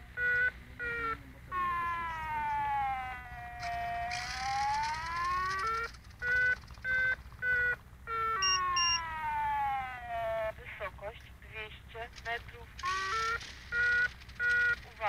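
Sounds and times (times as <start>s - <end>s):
electronic variometer tone: 0.0s - 10.6s, 12.8s - 15.0s
short beeps: 8.4s - 9.0s.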